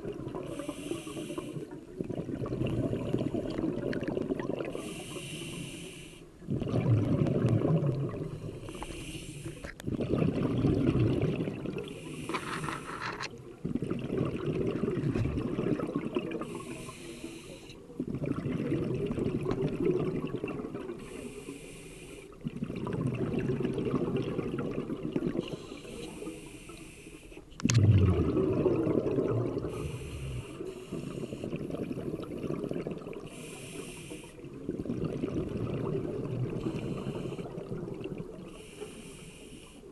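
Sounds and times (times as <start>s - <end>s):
exhaled air bubbling underwater: 0.0s - 39.9s
regulator hissing inhale: 0.5s - 1.7s, 4.7s - 6.3s, 8.4s - 9.7s, 11.9s - 13.0s, 16.4s - 17.8s, 21.0s - 22.4s, 25.5s - 27.5s, 29.6s - 31.6s, 33.2s - 34.5s, 36.6s - 37.6s, 38.5s - 39.9s.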